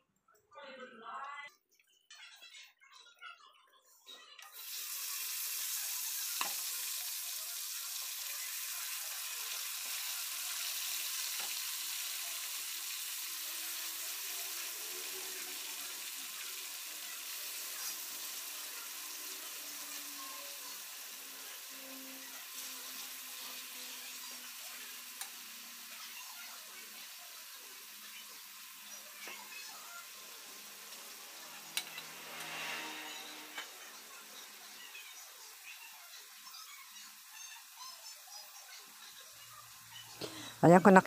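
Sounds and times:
meat sizzling in oil: 0:04.5 - 0:41.0
tongs clicking on pan: 0:06.4 - 0:06.6, 0:25.2 - 0:25.4.

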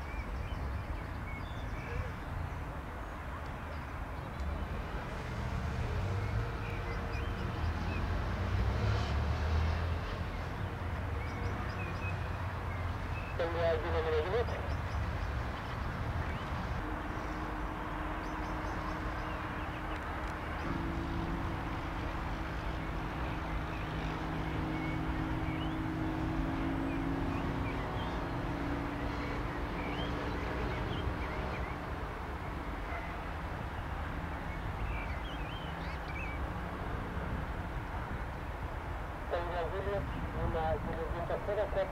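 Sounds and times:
distant jet engines rumbling: 0:00.0 - 0:41.9
small birds chirping: 0:22.3 - 0:32.0, 0:32.9 - 0:36.5.

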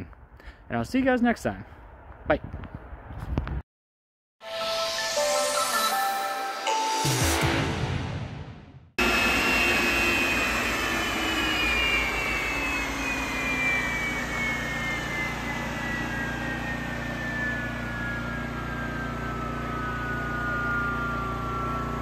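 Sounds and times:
turbojet engine winding down: 0:04.4 - 0:22.0.

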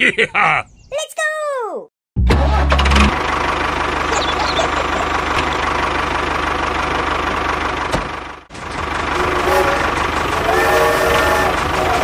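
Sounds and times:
tractor engine knocking: 0:03.1 - 0:12.0.

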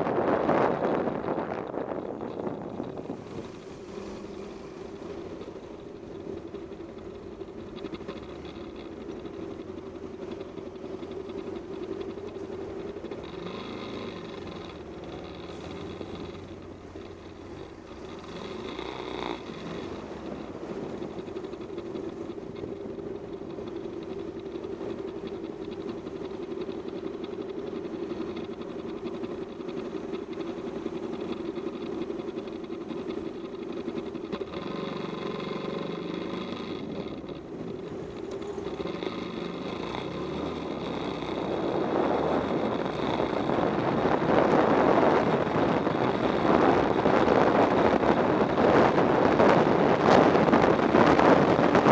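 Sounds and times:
wind noise on microphone: 0:00.0 - 0:06.5, 0:27.7 - 0:51.9
motorcycle engine running: 0:00.0 - 0:51.9.

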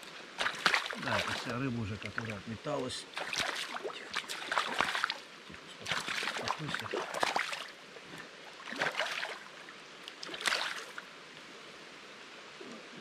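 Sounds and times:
fish splashing in shallow water: 0:00.0 - 0:02.4, 0:03.1 - 0:11.1
stream rushing: 0:00.0 - 0:13.0.

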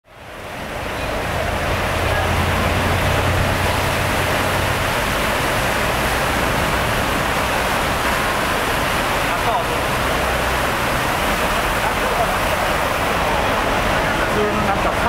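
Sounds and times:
railway station rushing noise: 0:00.2 - 0:15.0.

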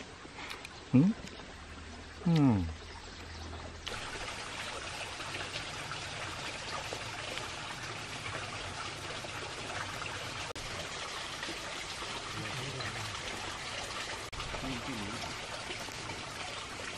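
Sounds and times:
running water: 0:00.0 - 0:16.9.

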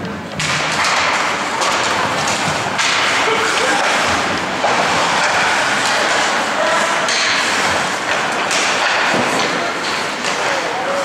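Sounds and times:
hockey sticks and puck knocking: 0:00.0 - 0:10.8
skate blades scraping ice: 0:00.4 - 0:11.0.

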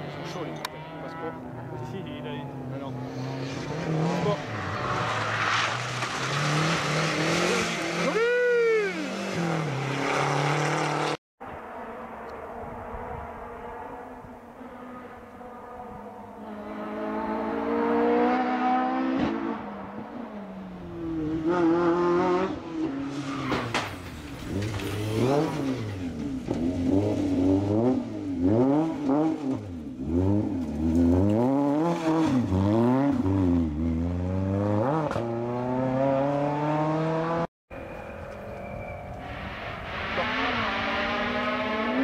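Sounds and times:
car engine revving hard: 0:26.8 - 0:37.5, 0:40.1 - 0:42.0.

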